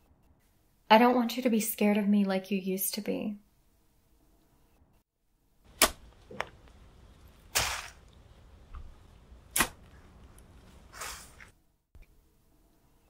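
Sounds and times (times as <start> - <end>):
shovel blade striking soil: 5.7 - 6.5, 7.4 - 8.1, 9.5 - 10.0
dirt scraping: 5.7 - 11.5.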